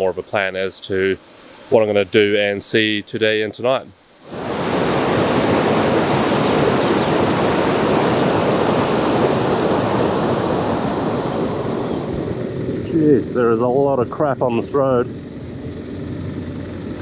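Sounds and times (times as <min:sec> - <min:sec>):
river rushing over rocks: 0:04.1 - 0:12.3.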